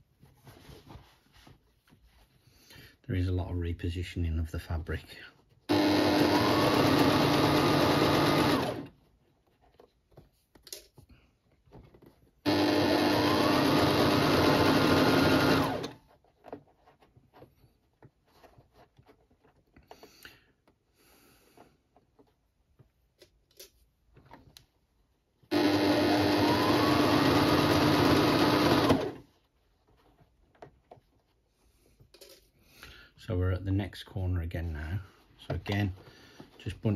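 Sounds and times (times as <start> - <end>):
sewing machine stitching: 5.7 - 9.0, 12.4 - 16.0, 25.5 - 29.2
faint clicks and handling: 9.0 - 12.4, 21.5 - 25.4, 29.4 - 32.6.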